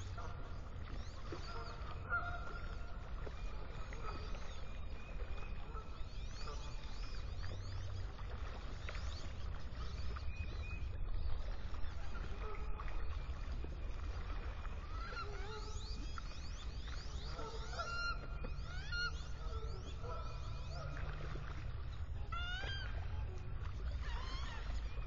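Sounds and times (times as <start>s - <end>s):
ducks calling: 0.0s - 7.9s, 14.2s - 25.0s.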